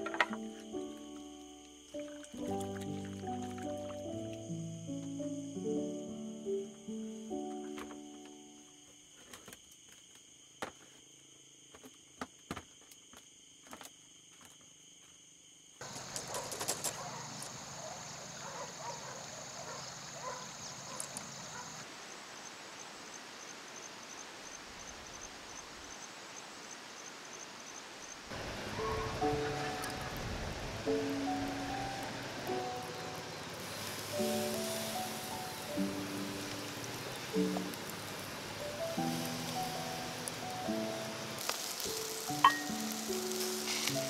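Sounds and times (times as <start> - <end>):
outdoor hiss: 0.0 - 11.8, 14.5 - 44.0
pulsing high insect call: 0.0 - 44.0
high-pitched insect trilling: 30.9 - 44.0.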